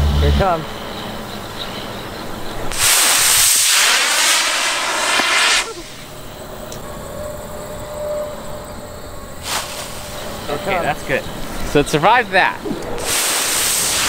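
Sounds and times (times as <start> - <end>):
rocket motor hissing: 2.6 - 6.4, 9.4 - 10.9, 12.8 - 14.0.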